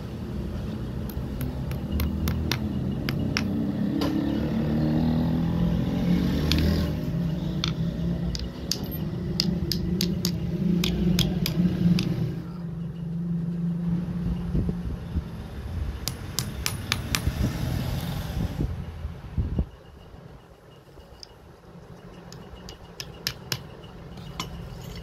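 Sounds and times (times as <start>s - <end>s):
hammer tapping metal rod: 1.0s - 3.6s, 7.6s - 12.2s, 21.2s - 24.6s.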